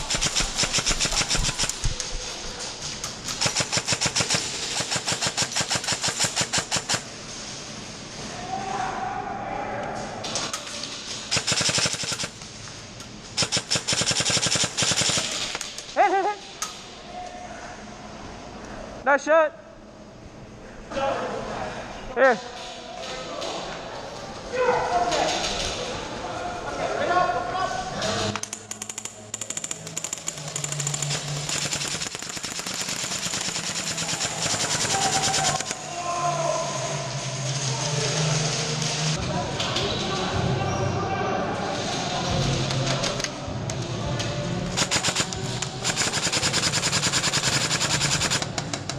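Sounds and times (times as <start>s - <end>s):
airsoft gun full-auto bursts: 0.0s - 1.9s, 3.3s - 7.0s, 11.3s - 12.4s, 13.4s - 15.5s, 29.0s - 35.8s, 44.8s - 48.5s.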